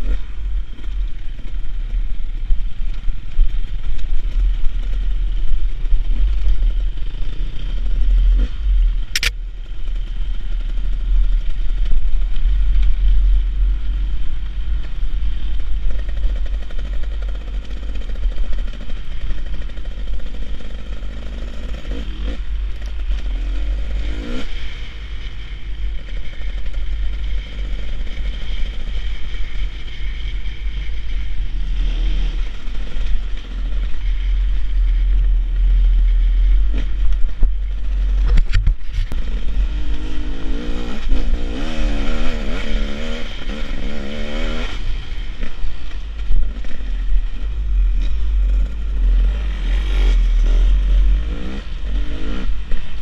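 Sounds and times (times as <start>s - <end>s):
motorcycle engine revving: 0.0s - 53.0s
sharp click: 9.1s - 9.4s.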